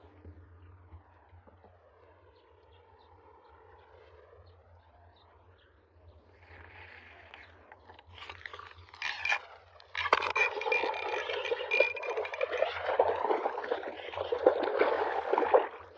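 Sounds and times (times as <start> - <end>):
scraping and clicking: 6.5 - 15.2
fishing reel being cranked: 8.1 - 14.1.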